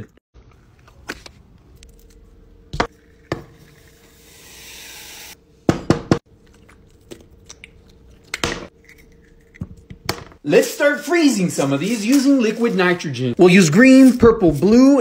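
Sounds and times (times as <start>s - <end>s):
hiss: 4.1s - 5.4s.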